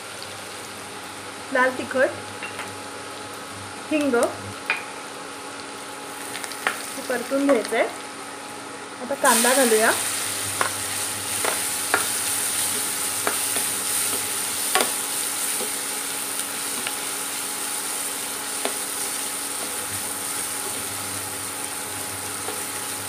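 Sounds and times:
onion sizzling in oil: 0:00.0 - 0:23.0
spatula knocking against pan: 0:12.8 - 0:15.0.

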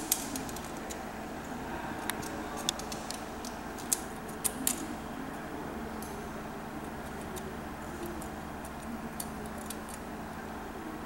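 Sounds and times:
steady background hum: 0:00.0 - 0:11.0.

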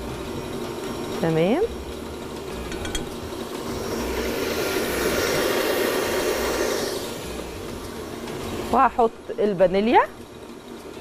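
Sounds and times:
electric mixer whirring: 0:00.0 - 0:08.8.

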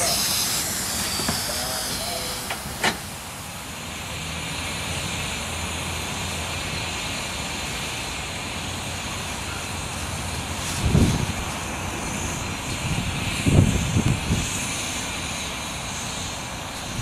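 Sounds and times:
steam hissing: 0:00.0 - 0:17.0
steady low rumble: 0:08.4 - 0:17.0.

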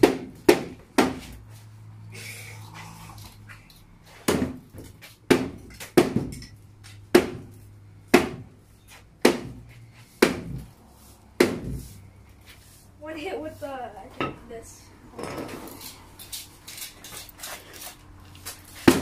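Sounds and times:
hammer striking wooden cabinet: 0:00.0 - 0:01.3, 0:04.3 - 0:06.4, 0:07.1 - 0:07.5, 0:08.1 - 0:08.5, 0:09.2 - 0:09.6, 0:10.2 - 0:10.7, 0:11.4 - 0:11.8.

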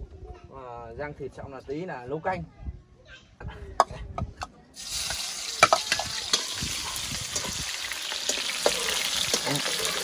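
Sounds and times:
meat sizzling in a pan: 0:04.8 - 0:10.0.

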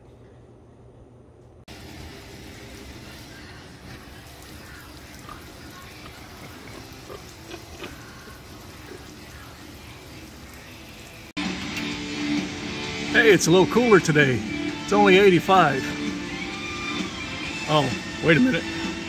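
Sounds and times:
lawn sprinkler spraying water: 0:01.7 - 0:11.3
pig grunts: 0:05.1 - 0:09.1.

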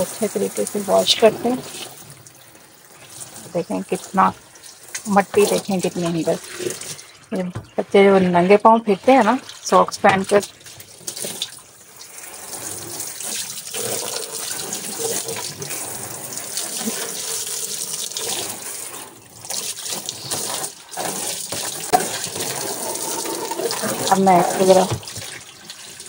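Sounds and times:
hose water into plastic tub: 0:00.0 - 0:26.0.

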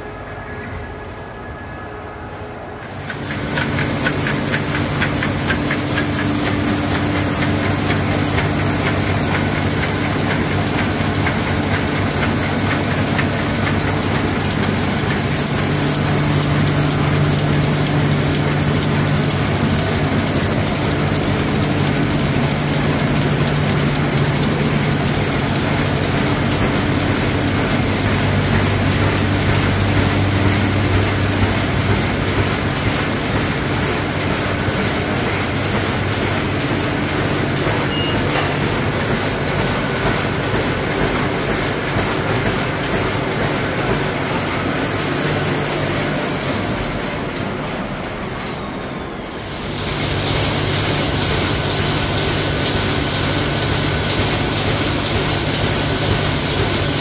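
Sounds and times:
low machine hum: 0:00.0 - 0:42.3
printing press clattering: 0:02.9 - 0:48.6, 0:49.4 - 0:57.0.

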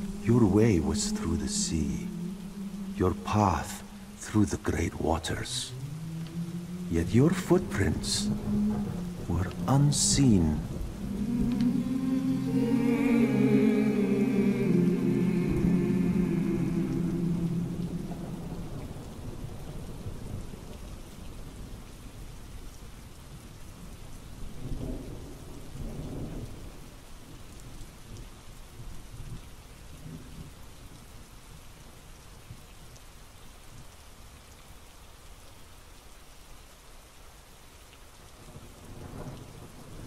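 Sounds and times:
steady rain: 0:00.0 - 0:40.0
thunder rumbling: 0:05.7 - 0:21.5.

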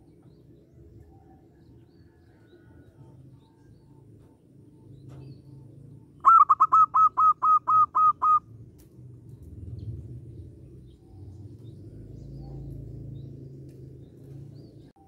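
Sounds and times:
dove cooing notes: 0:06.2 - 0:08.4.

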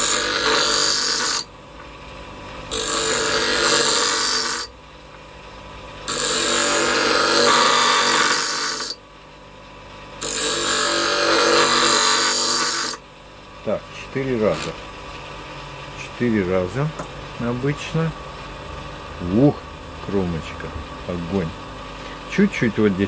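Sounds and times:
scissor sharpener grinding blade: 0:00.0 - 0:01.5, 0:02.7 - 0:04.7, 0:06.1 - 0:09.0, 0:10.2 - 0:13.0
sharpener motor running: 0:00.0 - 0:01.5, 0:02.7 - 0:04.7, 0:06.0 - 0:09.0, 0:10.2 - 0:13.0.

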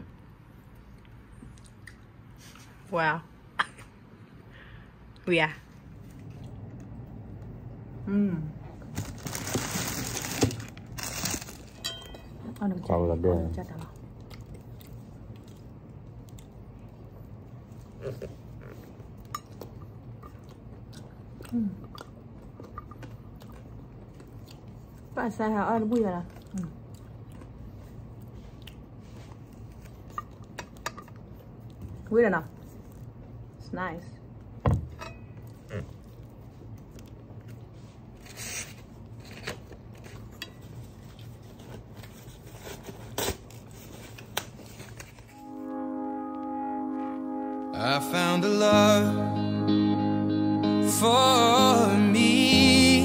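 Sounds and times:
low steady hum: 0:00.0 - 0:53.0
person chewing: 0:14.0 - 0:25.2, 0:26.3 - 0:31.8.

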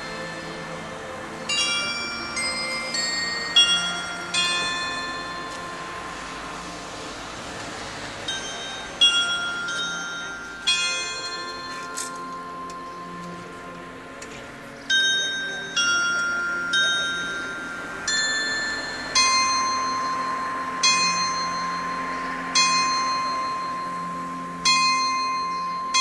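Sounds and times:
carillon bells playing tune: 0:00.0 - 0:26.0
single bell struck repeatedly: 0:14.9 - 0:26.0.

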